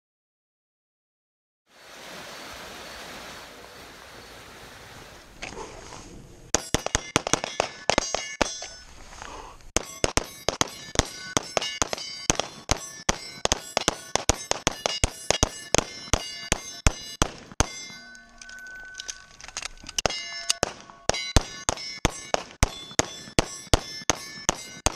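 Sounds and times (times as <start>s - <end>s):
steel targets ringing: 6.5s - 8.9s, 9.8s - 24.9s
pistol shots: 6.6s - 8.6s, 9.8s - 17.8s, 20.0s - 24.9s.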